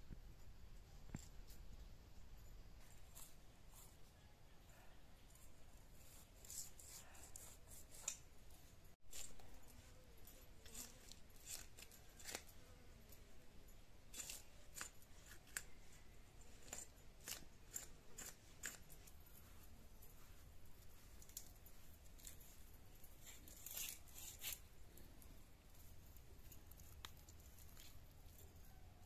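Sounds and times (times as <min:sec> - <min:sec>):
gourd being cut: 0:02.9 - 0:04.0, 0:05.4 - 0:08.4, 0:09.1 - 0:13.2, 0:14.0 - 0:19.8, 0:21.2 - 0:24.7
fish being scaled on a blade: 0:05.9 - 0:08.3, 0:09.1 - 0:12.9, 0:14.1 - 0:19.8.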